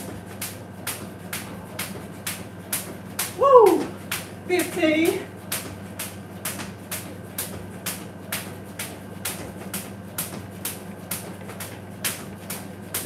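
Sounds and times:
low steady hum: 0.0 - 10.8
jump rope slapping floor: 0.0 - 13.0.

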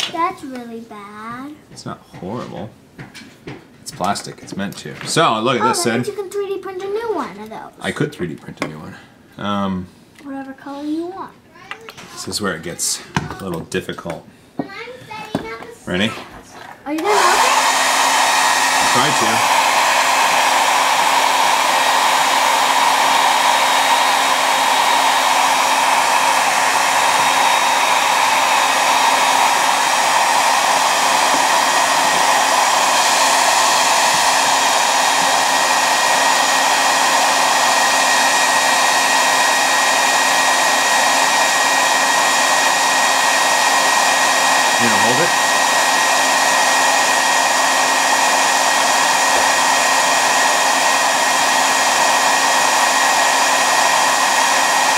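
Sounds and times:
hair dryer blowing: 0.0 - 0.3, 5.1 - 7.1, 11.8 - 13.6, 16.9 - 54.9.

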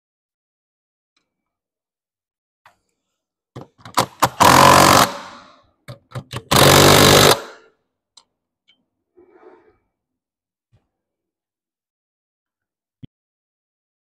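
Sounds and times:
impact wrench rapid hammering: 3.9 - 5.5, 6.2 - 7.7.

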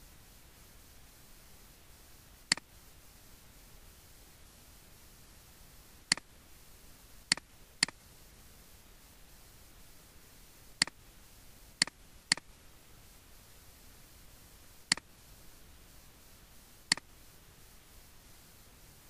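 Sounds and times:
faint steady hiss: 0.0 - 19.0
computer mouse clicking: 2.5 - 2.7, 6.1 - 6.3, 7.3 - 8.0, 10.8 - 11.0, 11.8 - 12.5, 14.9 - 15.1, 16.9 - 17.1.

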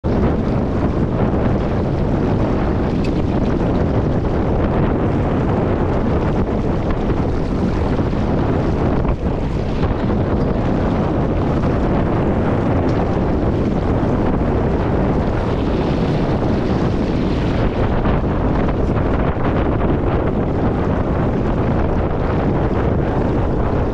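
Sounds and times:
water running along hull: 0.0 - 23.9
wind buffeting microphone: 0.0 - 23.9.

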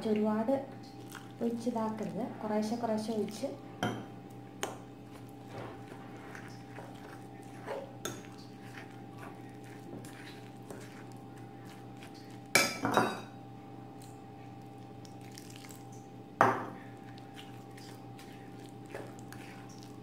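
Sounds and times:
steady hum: 0.0 - 20.0
spoon stirring batter in glass bowl: 0.9 - 13.2, 16.8 - 20.0.

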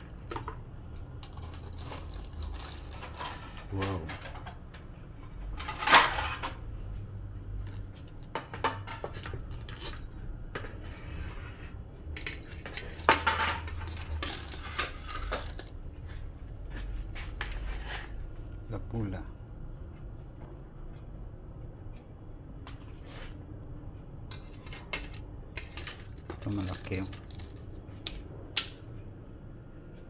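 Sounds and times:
metal spatula scraping steel pot: 1.2 - 3.6, 10.9 - 15.7, 24.3 - 27.6
crab shells clattering: 1.2 - 4.4, 12.2 - 15.8, 24.3 - 28.2.

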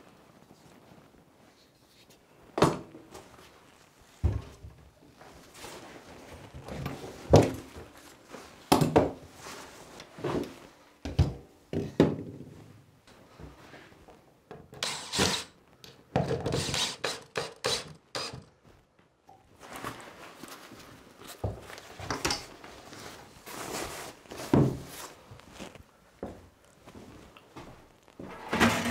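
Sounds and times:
tools knocking on wooden shelves: 11.0 - 12.5, 16.1 - 18.3
scraping and rustling: 19.5 - 26.0, 26.7 - 28.9.

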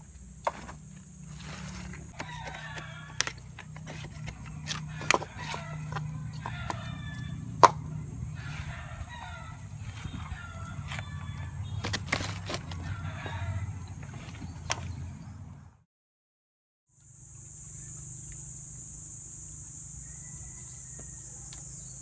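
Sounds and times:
rooster crowing: 1.6 - 14.3, 19.8 - 22.0.

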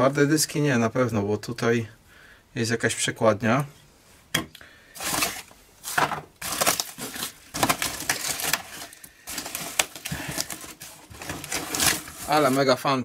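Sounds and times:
cardboard rustling and crinkling: 5.0 - 12.9.

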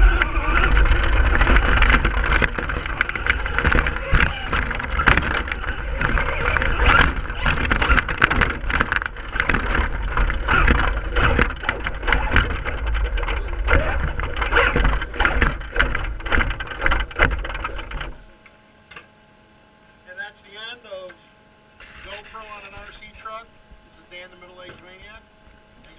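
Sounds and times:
rattles and knocks: 0.0 - 18.3
toy truck motor rumble: 0.0 - 18.3.

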